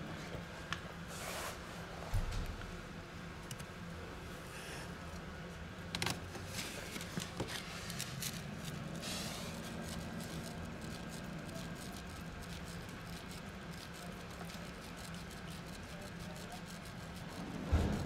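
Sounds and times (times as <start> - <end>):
low steady hum: 1.6 - 18.0
hand rustling on fur: 6.5 - 10.9.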